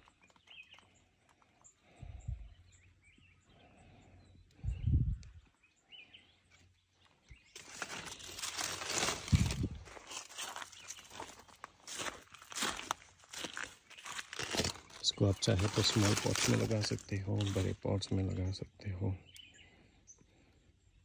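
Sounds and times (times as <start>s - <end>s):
faint bird chirps: 0.0s - 8.7s, 17.6s - 21.0s
dull low thumps: 4.6s - 5.4s
rustling and crunching: 7.4s - 18.4s.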